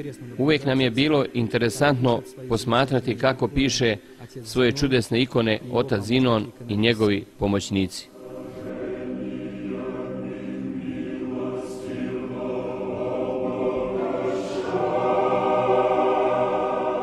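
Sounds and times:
choir singing liturgical chant: 0:00.0 - 0:04.0, 0:08.1 - 0:17.0.

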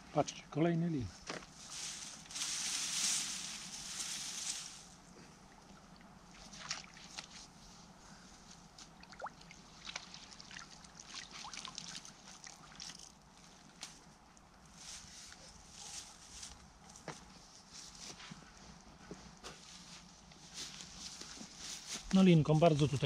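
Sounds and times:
water sloshing: 0:05.5 - 0:07.4.

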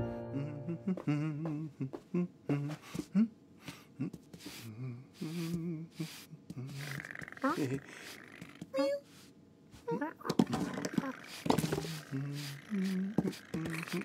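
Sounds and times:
man humming: 0:00.0 - 0:07.8, 0:10.6 - 0:14.0
brush swishing on fur: 0:04.4 - 0:07.0, 0:11.2 - 0:14.0.

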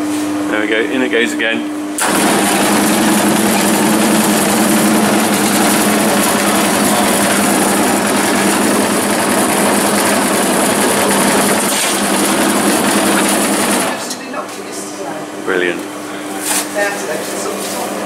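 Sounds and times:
bread slicer sawing: 0:02.0 - 0:14.1.

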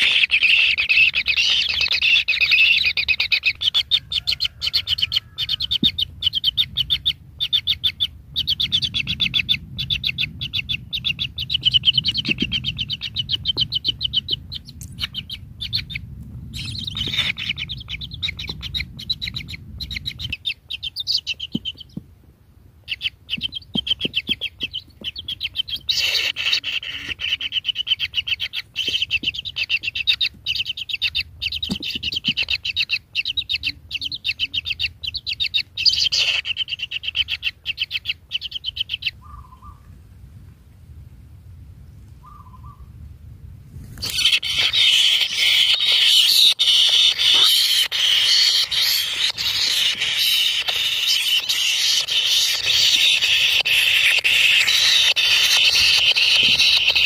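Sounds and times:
nestlings chirping: 0:00.0 - 0:22.1, 0:22.8 - 0:39.8, 0:43.9 - 0:57.0
low rumble: 0:04.1 - 0:20.4, 0:39.1 - 0:44.8.

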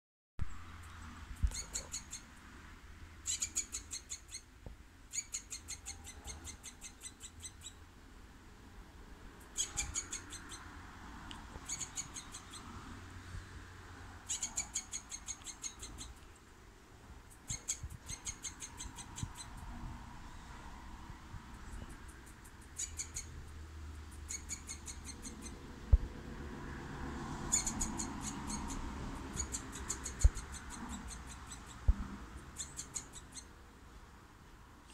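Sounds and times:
squirrel chattering: 0:00.8 - 0:02.4, 0:03.2 - 0:04.5, 0:05.1 - 0:07.8, 0:09.4 - 0:10.8, 0:11.5 - 0:12.9, 0:14.2 - 0:16.4, 0:17.3 - 0:19.9, 0:21.5 - 0:25.7, 0:27.4 - 0:33.6.

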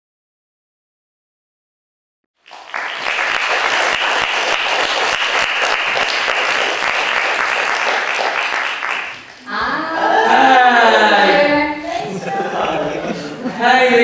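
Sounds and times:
audience applauding: 0:02.4 - 0:09.6.

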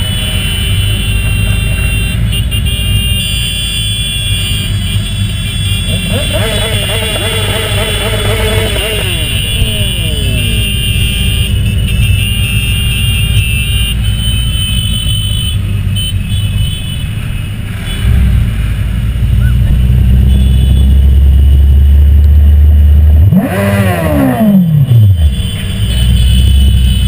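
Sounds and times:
motorcycle engines droning: 0:00.0 - 0:27.0
engine revving sharply: 0:05.9 - 0:10.8.

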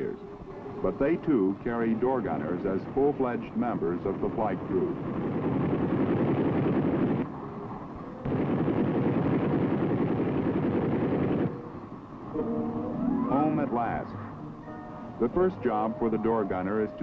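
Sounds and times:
helicopter drone: 0:00.0 - 0:17.0
machine-gun fire: 0:05.2 - 0:07.2, 0:08.2 - 0:11.6.

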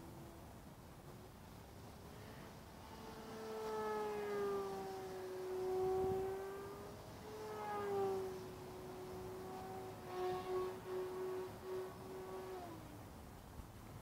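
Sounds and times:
model plane motor whining: 0:02.0 - 0:13.0.

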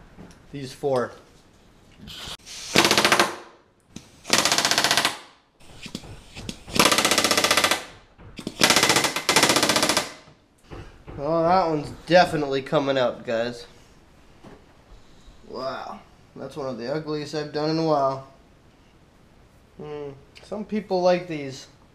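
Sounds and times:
pneumatic rivet gun hammering: 0:02.5 - 0:10.3.

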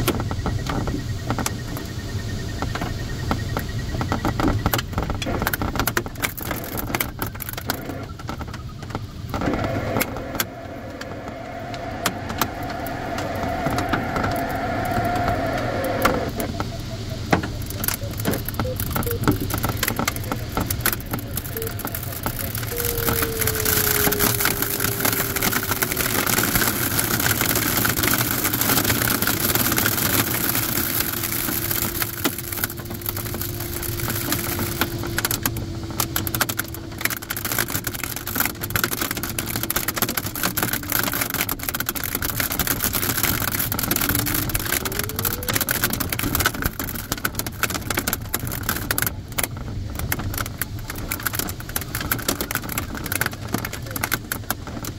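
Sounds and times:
hail and rain rattling on canopy: 0:03.9 - 0:54.9
rush of airflow: 0:09.3 - 0:17.3
electronic variometer tone: 0:09.4 - 0:36.3.

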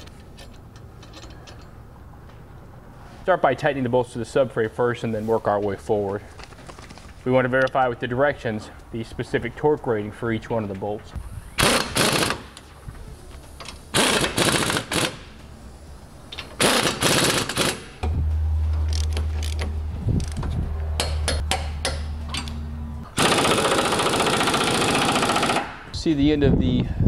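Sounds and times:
steady low hum: 0:14.8 - 0:23.3
rattling burst: 0:23.1 - 0:25.9.

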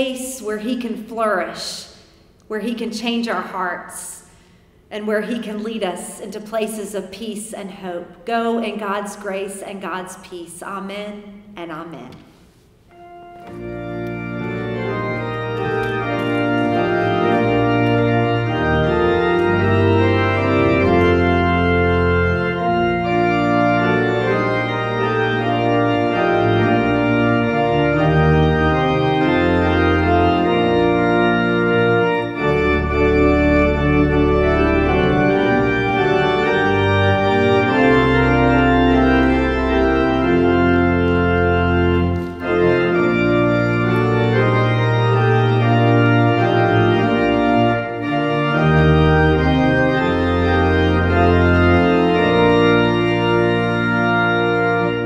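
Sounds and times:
organ playing sustained chords: 0:12.7 - 0:55.0.

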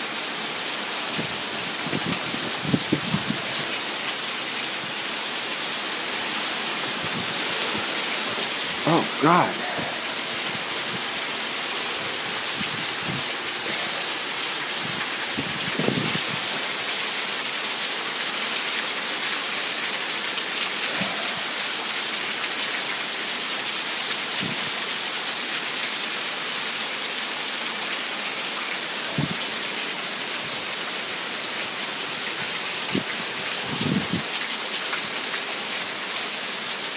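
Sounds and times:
heavy rain hissing: 0:00.0 - 0:25.4.

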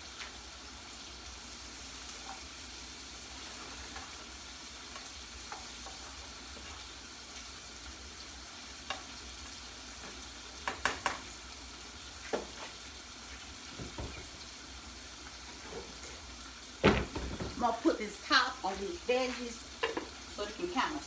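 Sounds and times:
vegetables sizzling in a frying pan: 0:00.0 - 0:21.0
utensil knocking against pan: 0:10.6 - 0:11.2.

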